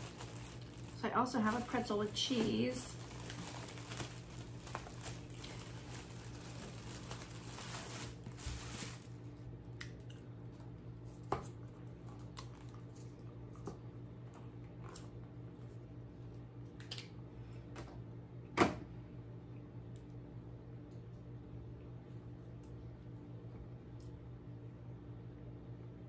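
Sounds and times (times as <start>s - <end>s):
plastic wrapper crinkling: 0.0s - 9.3s.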